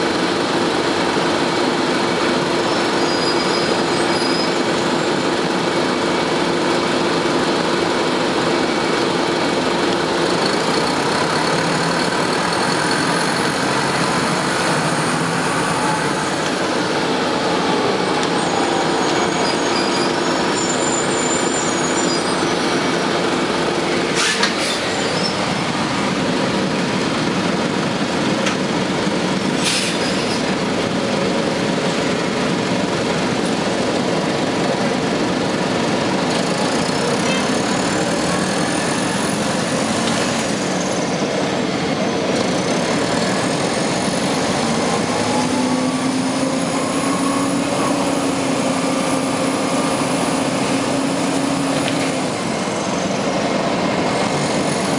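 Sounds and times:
bus engine running: 0.0 - 54.9.

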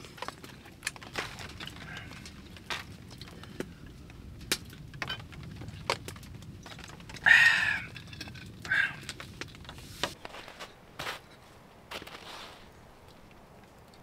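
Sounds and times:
wood fire crackling and popping: 0.0 - 10.4, 11.8 - 14.0
breathy hiss: 7.2 - 7.9.

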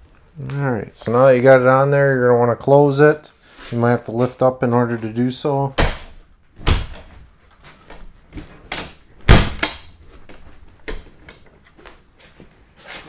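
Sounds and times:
door knocks and clunks: 5.8 - 7.2.

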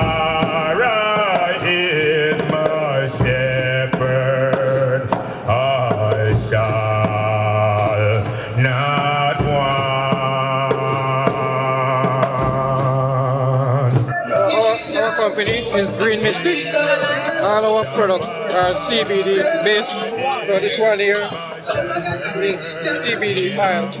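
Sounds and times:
group of voices chanting: 16.6 - 24.0
hand drums beating: 17.3 - 24.0.

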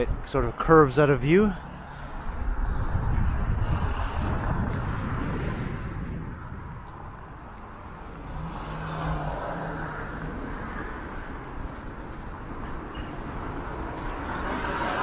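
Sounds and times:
car driving past: 8.2 - 11.0.

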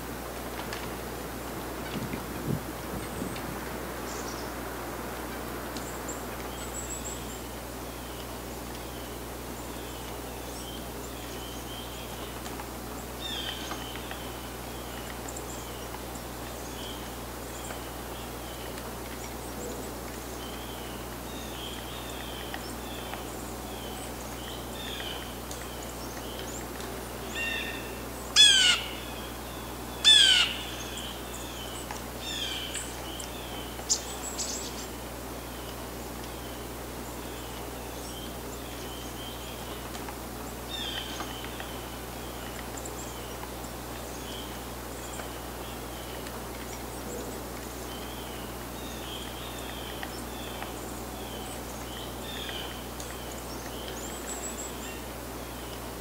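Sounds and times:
birds chipping: 0.5 - 56.0
harsh bird calls: 27.3 - 34.9.

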